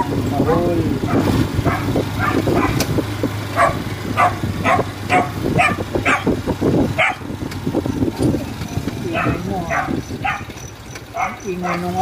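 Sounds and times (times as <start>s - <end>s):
vehicle low hum: 0.0s - 12.0s
dog barking: 0.4s - 2.8s, 3.5s - 6.4s, 7.0s - 7.2s, 9.1s - 12.0s.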